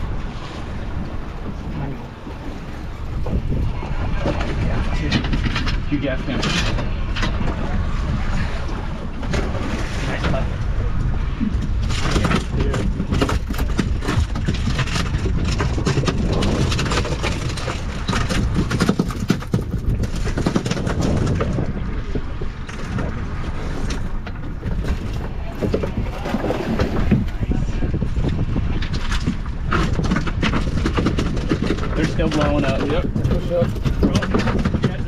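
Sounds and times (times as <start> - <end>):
wind buffeting microphone: 0.0 - 35.0
knocks and clatters of handling: 11.9 - 21.6, 28.8 - 35.0.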